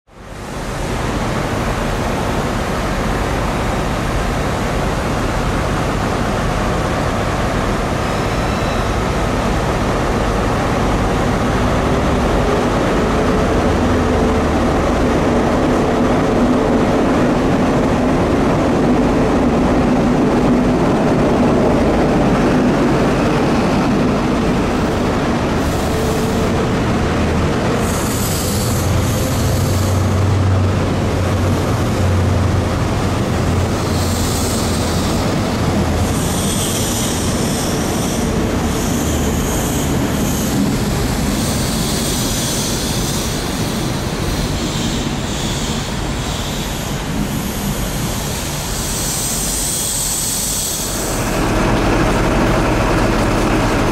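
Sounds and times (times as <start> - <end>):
diesel engines droning: 0.2 - 53.9
wheel and rail noise: 0.2 - 53.9.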